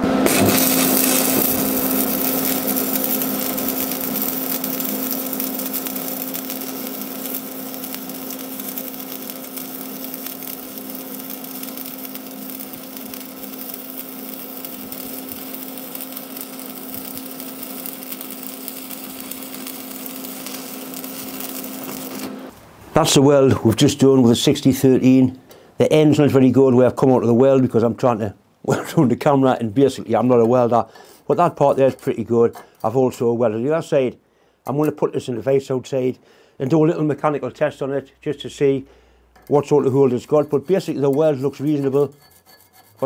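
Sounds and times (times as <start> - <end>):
welding arc crackle and sizzle: 0.2 - 22.6.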